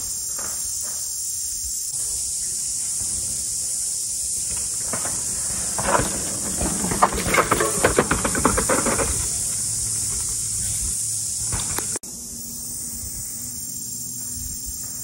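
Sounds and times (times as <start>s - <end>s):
bike tyres on dirt: 0.0s - 15.0s
steady high hiss: 0.0s - 15.0s
bike clattering: 2.4s - 12.0s.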